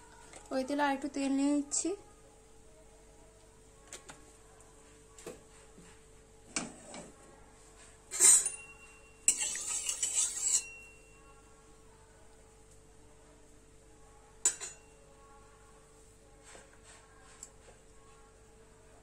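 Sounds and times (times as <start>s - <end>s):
spatula scraping and stirring: 8.0s - 8.6s, 9.2s - 11.0s
utensils knocking on metal pot: 14.4s - 14.8s.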